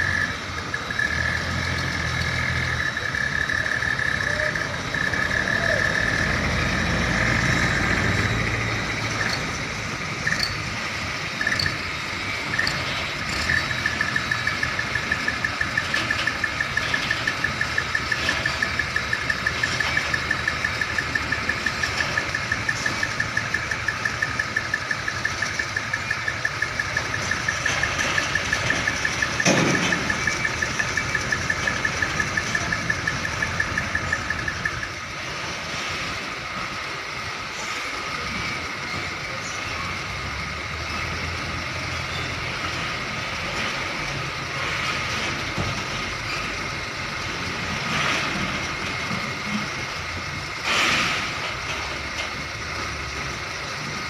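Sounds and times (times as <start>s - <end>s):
high rapidly pulsing tone: 0.0s - 6.5s, 7.2s - 35.1s
diesel truck engines idling: 0.0s - 54.0s.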